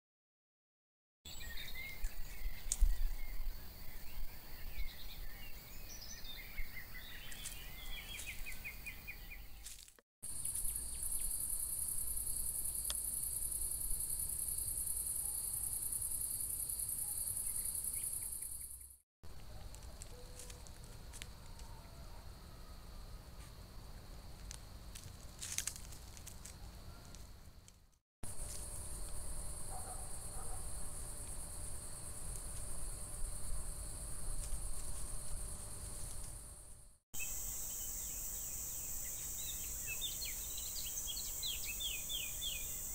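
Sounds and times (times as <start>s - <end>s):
loud steady insect trill: 10.3s - 19.0s, 20.4s - 42.9s
crickets chirping: 10.3s - 42.9s.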